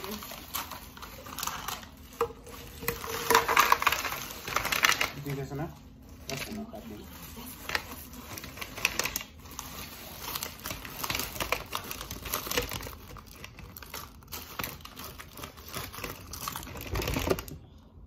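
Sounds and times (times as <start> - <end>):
plastic bag crinkling: 0.0 - 17.7.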